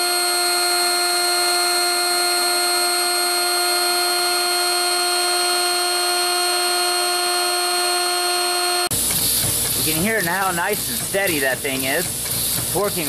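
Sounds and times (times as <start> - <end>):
air motor high whine: 0.0 - 13.0
air hissing: 8.7 - 13.0.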